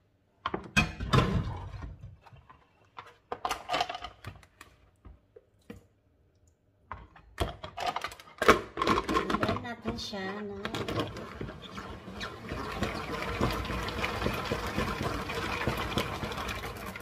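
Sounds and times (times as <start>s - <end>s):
plastic salad spinner rattling: 7.8s - 17.0s.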